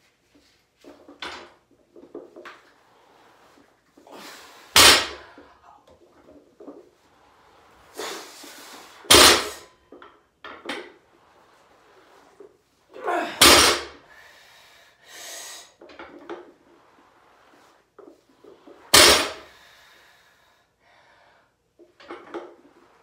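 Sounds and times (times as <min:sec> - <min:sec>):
barbell thudding on floor: 0:04.7 - 0:05.4, 0:09.1 - 0:09.6, 0:13.3 - 0:14.0, 0:18.9 - 0:19.5.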